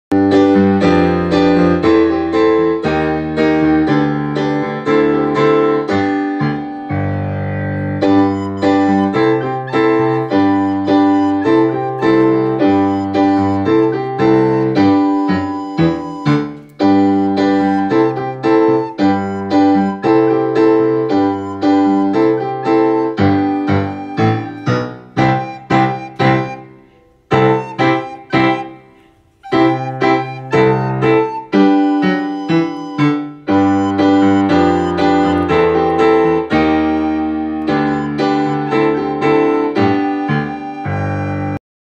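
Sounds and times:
lower keyboard accompaniment: 0.1s - 41.6s
piano-like keyboard melody: 0.1s - 41.6s.

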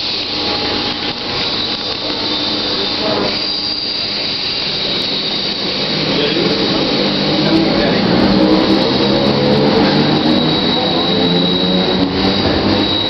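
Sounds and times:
train brakes squealing: 0.0s - 13.0s
train rolling on rails: 0.0s - 13.0s
whining tone: 0.0s - 13.0s.

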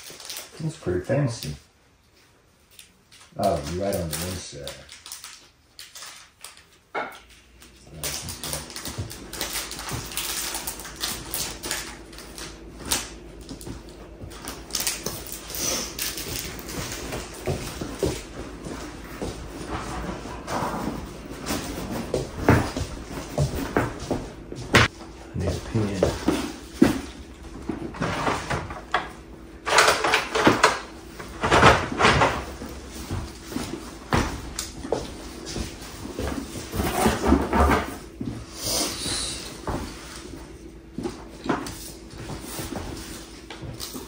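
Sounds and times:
paper rustling and crinkling: 0.0s - 1.0s, 2.7s - 6.9s, 7.9s - 23.6s.

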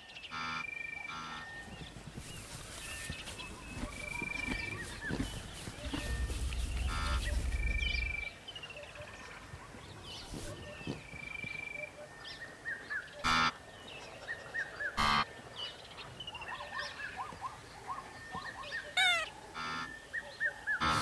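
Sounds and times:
wildebeest honking grunts: 3.9s - 8.3s, 19.0s - 19.9s.

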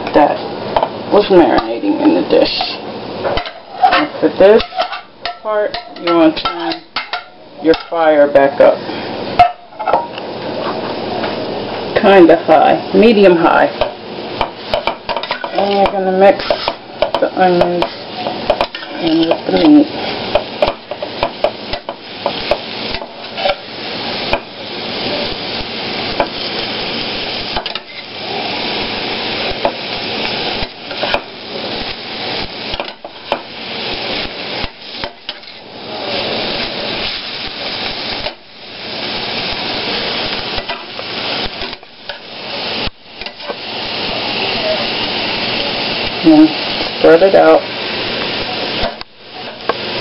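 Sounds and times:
meat sizzling in a pan: 0.0s - 50.0s
spatula scraping a pan: 3.4s - 8.0s, 14.7s - 23.7s, 27.6s - 28.2s, 34.7s - 35.7s.

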